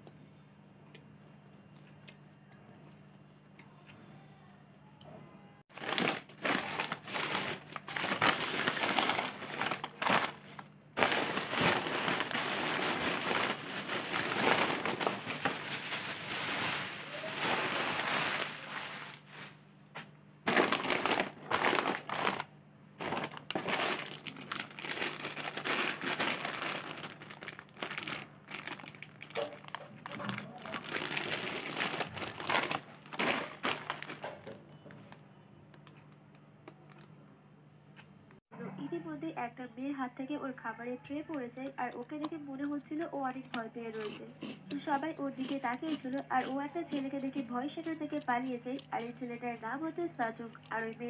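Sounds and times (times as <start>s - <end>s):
plastic packets crinkling: 5.7s - 19.6s, 20.5s - 35.2s.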